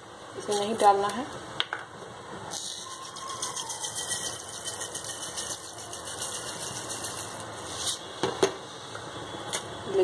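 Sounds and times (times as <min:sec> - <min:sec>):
sugar pouring into pan: 0:02.5 - 0:07.7.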